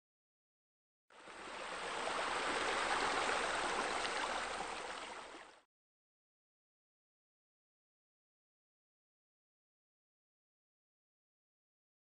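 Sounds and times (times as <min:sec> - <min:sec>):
running splashing water: 0:01.2 - 0:05.6.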